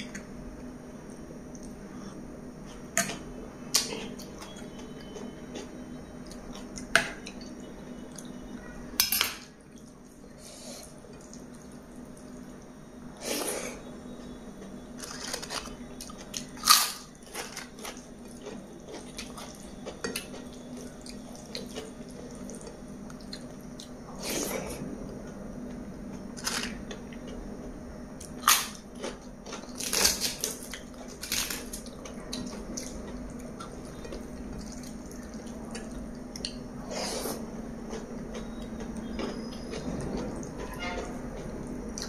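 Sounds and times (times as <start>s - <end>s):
faint steady hum: 0.0s - 42.0s
wet chewing and mouth sounds: 28.2s - 42.0s.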